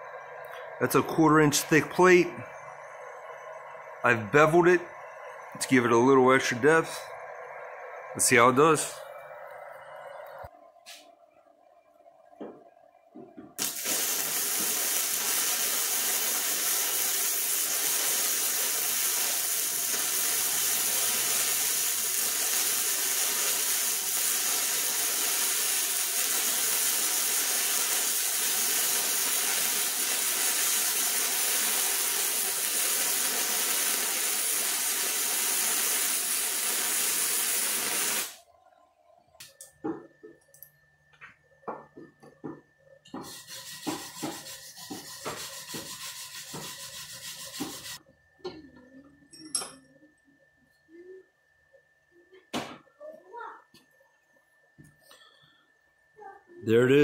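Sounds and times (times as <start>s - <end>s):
welding arc hissing: 13.6s - 38.4s, 43.1s - 48.0s.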